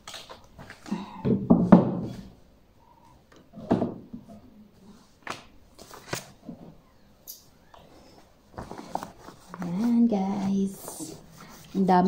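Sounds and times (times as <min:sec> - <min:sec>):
books knocking on shelf: 0:01.2 - 0:02.3
paper rustling: 0:08.5 - 0:12.0.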